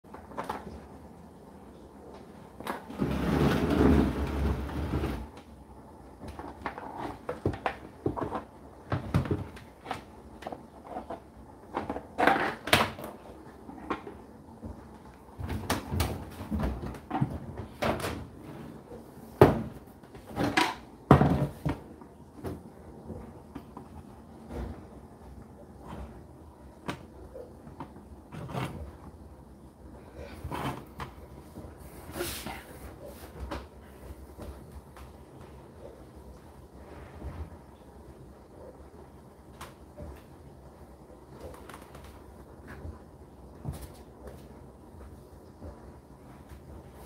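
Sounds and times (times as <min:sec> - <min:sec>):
rustling noise: 0:02.1 - 0:05.5, 0:30.2 - 0:38.4.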